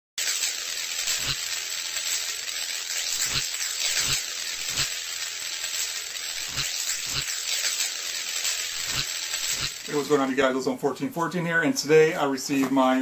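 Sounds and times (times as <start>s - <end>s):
crackling hiss: 0.2s - 10.4s.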